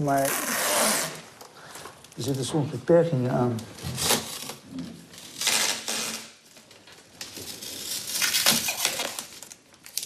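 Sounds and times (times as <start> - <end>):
plastic tubing clattering: 8.2 - 9.6.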